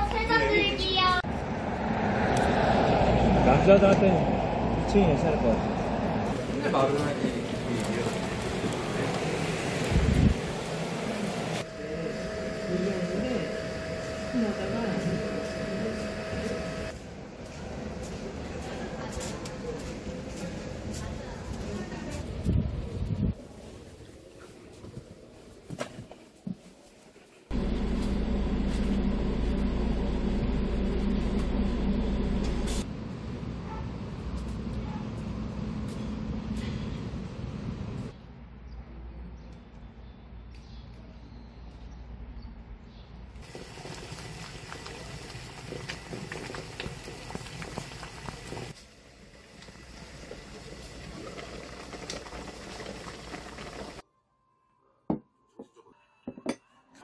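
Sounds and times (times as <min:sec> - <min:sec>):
low outdoor hum: 0:00.0 - 0:19.5, 0:27.5 - 0:39.9
water boiling in a pot: 0:07.0 - 0:16.9, 0:43.4 - 0:54.0
bus engine idling: 0:27.5 - 0:32.8.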